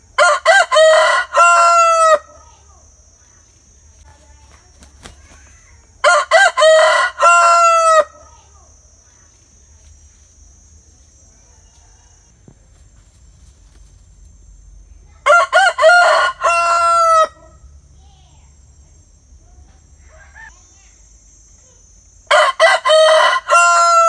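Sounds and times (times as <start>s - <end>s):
rooster crowing: 0.1s - 2.4s, 6.0s - 8.3s, 11.4s - 12.4s, 15.2s - 17.7s, 22.3s - 24.0s.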